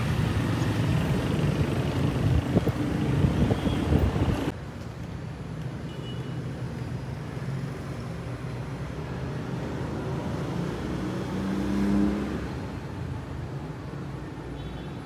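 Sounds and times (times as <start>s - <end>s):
vehicle passing: 9.4s - 13.0s.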